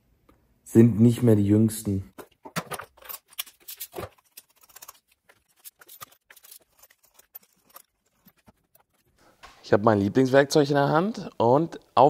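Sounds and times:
small tools clicking and tapping: 0:02.2 - 0:09.2.

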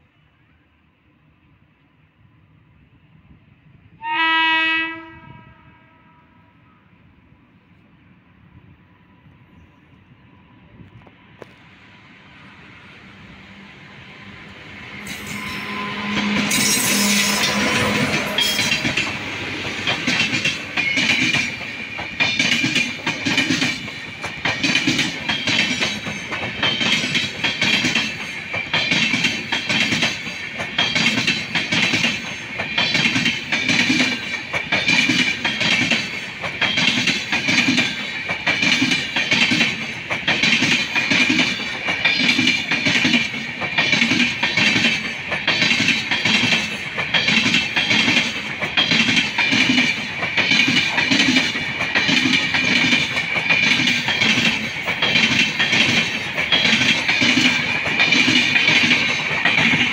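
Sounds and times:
electric locomotive passing: 0:00.0 - 0:59.9
train wheels clattering over rail joints: 0:16.1 - 0:59.9.

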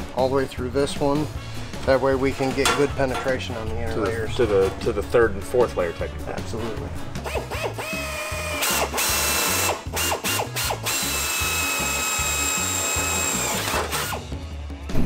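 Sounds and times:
power drill whining: 0:07.2 - 0:14.3.

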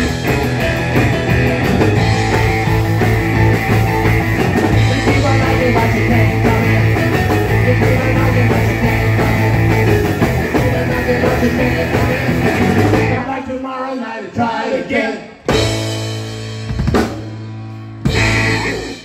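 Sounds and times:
ringing guitar chords: 0:00.0 - 0:13.2, 0:17.6 - 0:19.0
live rock band playing: 0:00.0 - 0:13.4, 0:15.4 - 0:19.0
singer's voice: 0:04.7 - 0:09.8, 0:10.4 - 0:15.4.

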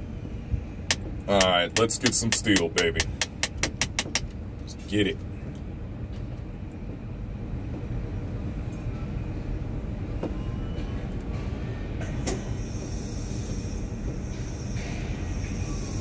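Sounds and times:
tower crane machinery rumbling: 0:00.0 - 0:16.0
faint whines: 0:04.6 - 0:16.0.

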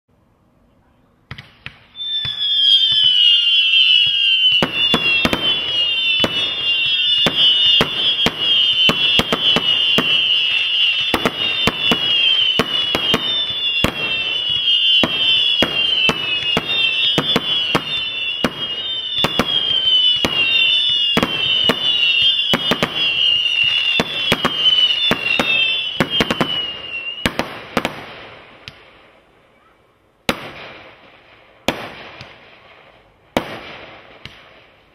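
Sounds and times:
firework whistles: 0:01.5 - 0:28.8
firework cracks and bangs: 0:03.8 - 0:28.9, 0:30.3 - 0:34.8.

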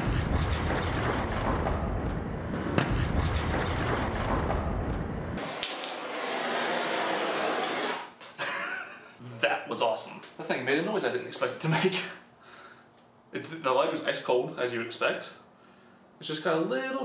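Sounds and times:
deep rumble: 0:00.0 - 0:05.4
blowtorch flame hissing: 0:05.4 - 0:08.1.

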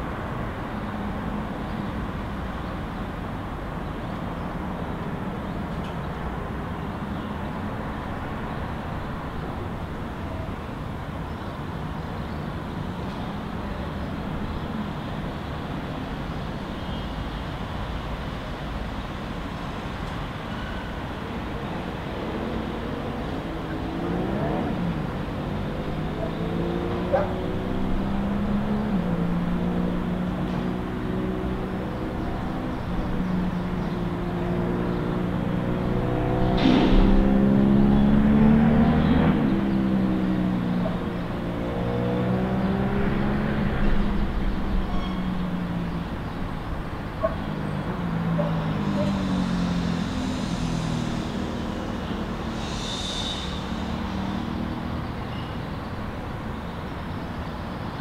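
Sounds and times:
city road traffic hum: 0:00.0 - 0:58.0
vehicle engine accelerating: 0:21.7 - 0:56.6.

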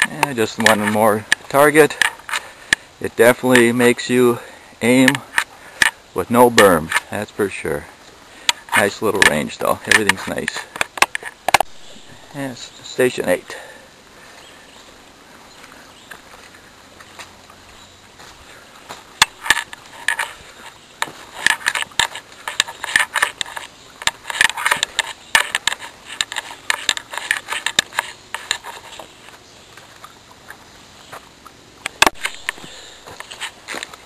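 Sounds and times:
footsteps on leaves and twigs: 0:00.0 - 0:34.0
sharp click: 0:08.4 - 0:11.7.

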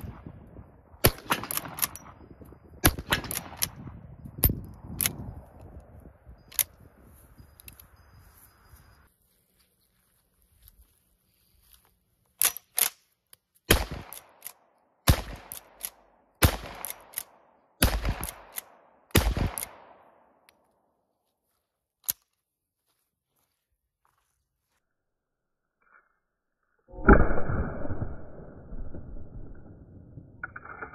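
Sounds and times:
rifle shots echoing: 0:00.0 - 0:02.2, 0:02.8 - 0:04.0, 0:13.7 - 0:20.4.

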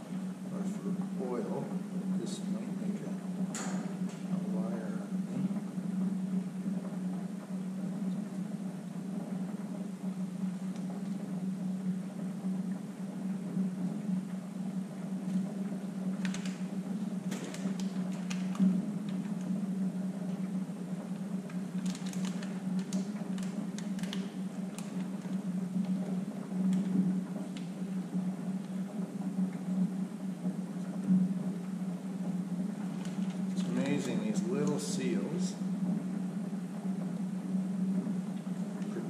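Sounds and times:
low mechanical hum: 0:00.0 - 0:39.0
small parts clicking and rustling: 0:21.8 - 0:25.0.

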